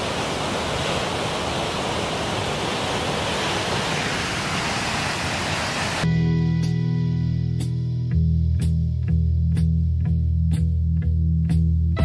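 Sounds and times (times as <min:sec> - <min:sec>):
waterfall roaring: 0:00.0 - 0:06.1.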